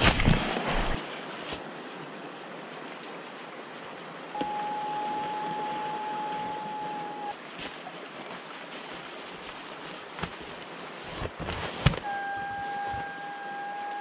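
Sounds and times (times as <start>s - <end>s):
electric pump whining: 4.4s - 7.3s, 11.4s - 14.0s
handling knocks and clicks: 10.2s - 12.1s.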